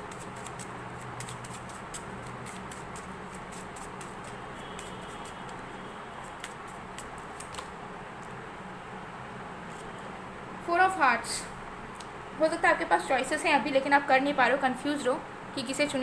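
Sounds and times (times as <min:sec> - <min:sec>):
cards being shuffled: 0:00.1 - 0:05.6, 0:06.2 - 0:08.3.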